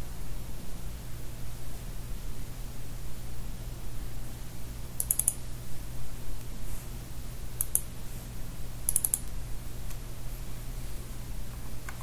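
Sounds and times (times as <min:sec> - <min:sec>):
low electrical hum: 0:00.0 - 0:12.0
computer mouse buttons clicking: 0:05.0 - 0:05.4, 0:07.6 - 0:07.9, 0:08.9 - 0:09.3.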